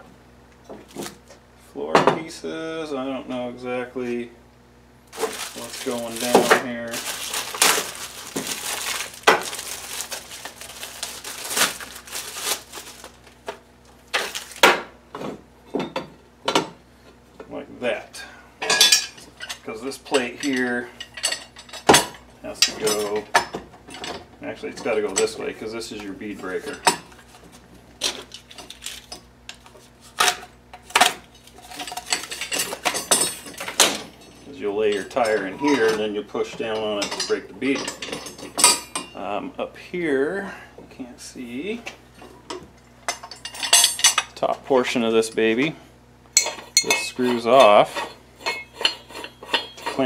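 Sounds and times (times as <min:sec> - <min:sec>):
packaging crinkling: 0:05.1 - 0:14.6
steel parts clanking: 0:30.2 - 0:39.2, 0:46.4 - 0:50.0.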